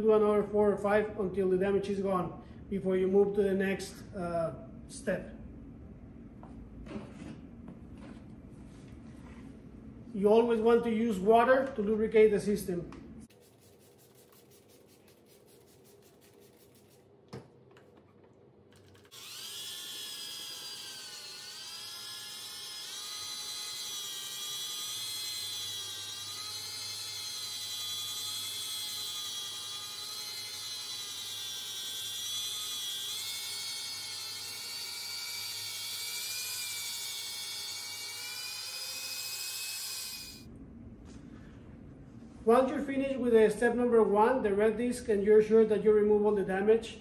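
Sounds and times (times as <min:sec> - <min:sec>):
electric drill motor whine: 0:18.9 - 0:40.5.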